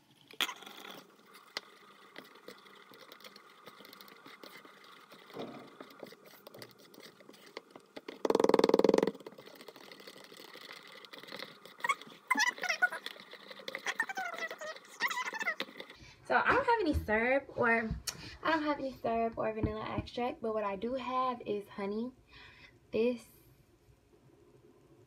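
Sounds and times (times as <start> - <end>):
spoon stirring batter in cup: 0.1 - 8.3, 9.1 - 16.0.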